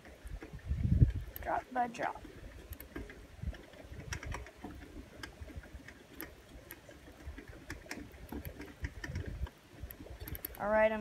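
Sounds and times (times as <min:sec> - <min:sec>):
bike chain ticking: 0:02.7 - 0:10.7.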